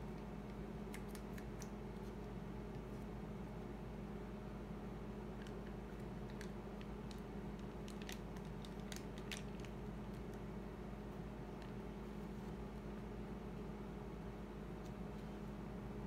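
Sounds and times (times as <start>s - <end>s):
faint sharp clicks and crackles: 0.0s - 3.0s, 5.3s - 10.5s
low room hum: 0.0s - 16.0s.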